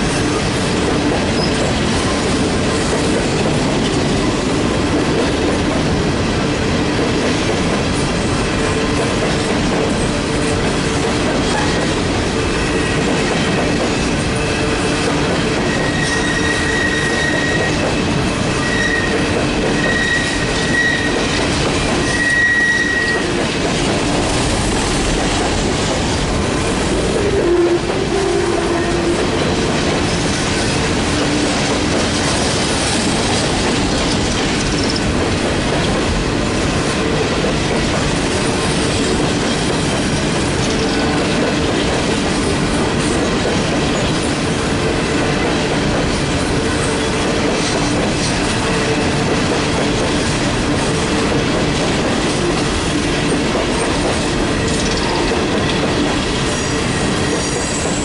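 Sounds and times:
train cars rumbling on rails: 0.0s - 58.0s
high wheel squeal: 15.6s - 21.4s, 22.0s - 23.3s
low wheel squeal: 15.7s - 17.8s, 18.6s - 21.3s, 22.0s - 23.3s.

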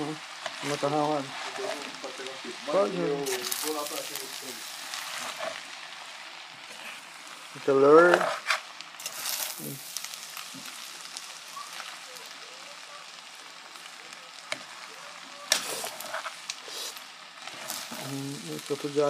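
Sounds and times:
pan sizzling: 0.0s - 19.0s
fork scraping pan: 5.0s - 5.6s, 8.1s - 9.4s, 15.5s - 18.1s.

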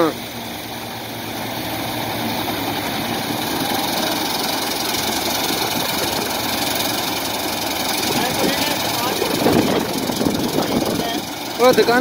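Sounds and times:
combine harvester running: 0.0s - 12.0s.

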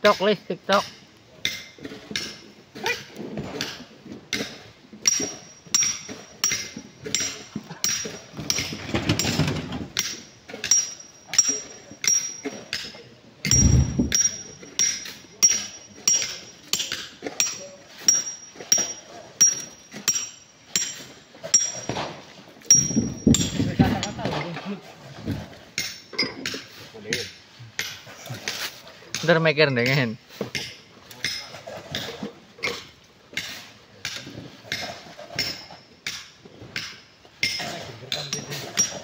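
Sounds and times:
heavy low thud: 13.5s - 14.4s
hammer striking rock: 13.5s - 22.1s, 22.7s - 24.1s.

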